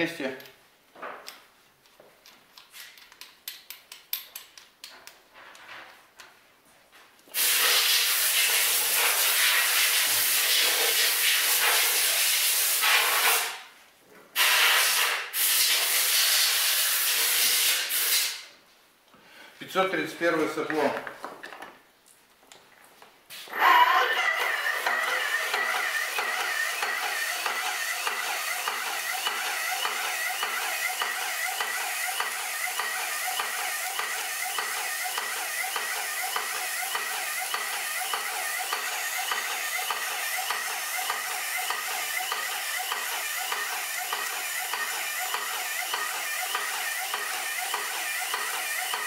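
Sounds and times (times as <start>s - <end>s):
hiss of spray jet: 7.4s - 13.6s, 14.4s - 18.4s.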